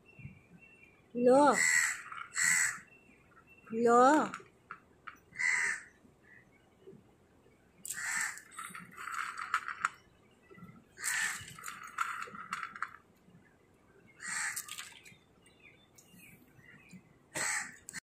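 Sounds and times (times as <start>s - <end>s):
crow cawing: 1.5s - 2.9s, 5.3s - 5.9s, 7.9s - 8.4s, 11.0s - 11.4s, 14.2s - 14.8s, 17.4s - 18.0s.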